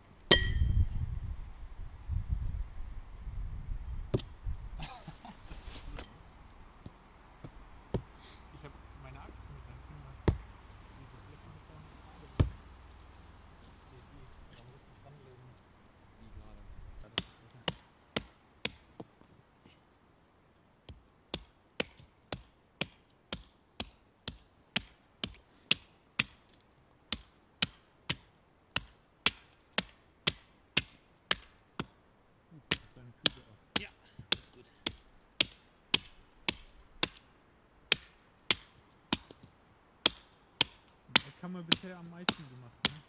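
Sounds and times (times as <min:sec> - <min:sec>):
axe chopping wood: 0:04.1 - 0:04.3, 0:07.4 - 0:08.1, 0:10.2 - 0:10.5, 0:12.4 - 0:12.6, 0:17.2 - 0:19.1, 0:20.9 - 0:26.5, 0:27.1 - 0:31.9, 0:32.7 - 0:37.3, 0:37.9 - 0:43.0.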